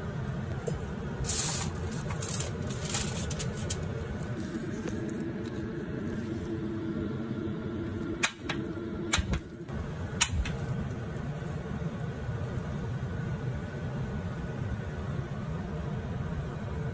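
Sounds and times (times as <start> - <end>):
steady low hum: 0.0 - 16.9
gas grill igniter clicking: 8.2 - 10.7.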